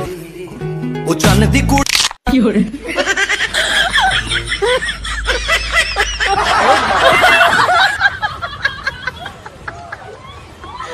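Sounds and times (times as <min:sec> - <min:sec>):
laughter: 0:02.8 - 0:10.9.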